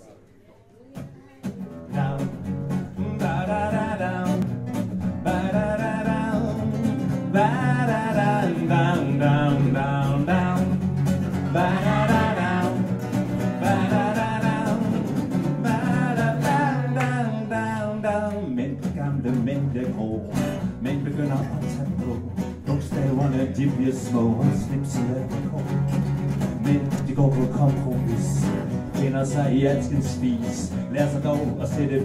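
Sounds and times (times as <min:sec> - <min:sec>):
acoustic guitars strumming: 0:01.0 - 0:32.0.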